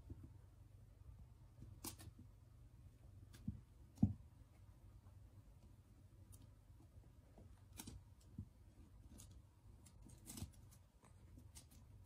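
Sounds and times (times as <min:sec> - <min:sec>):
faint taps and clicks of rabbit: 0:03.1 - 0:11.9.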